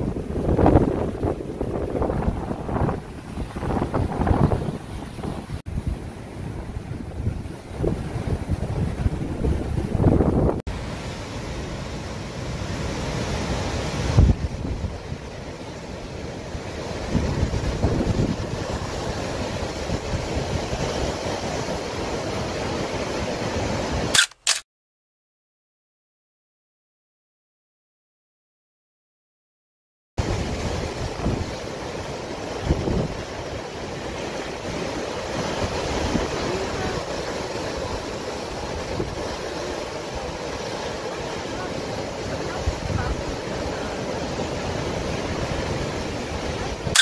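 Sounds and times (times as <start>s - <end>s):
wind buffeting microphone: 0.0s - 10.6s, 13.9s - 15.6s, 16.8s - 21.6s, 30.2s - 47.0s
waves breaking on rocks: 0.0s - 24.1s, 30.2s - 47.0s.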